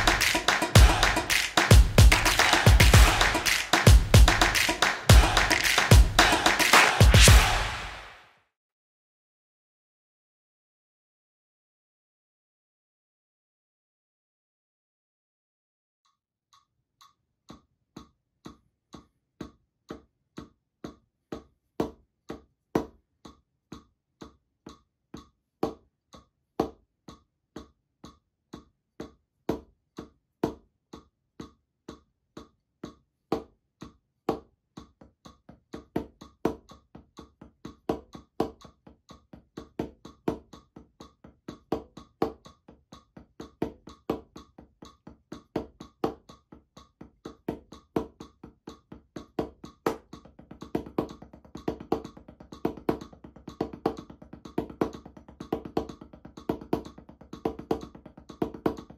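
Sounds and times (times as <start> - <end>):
drumsticks striking practice pad: 0.0 - 8.1.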